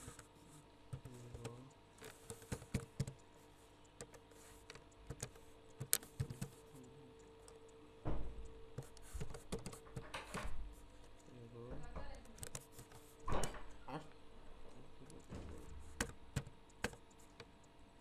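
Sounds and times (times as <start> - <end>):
faint steady hum: 0.0 - 18.0
keyboard key clicks: 4.0 - 6.6, 8.8 - 10.5
low thump: 8.0 - 8.4.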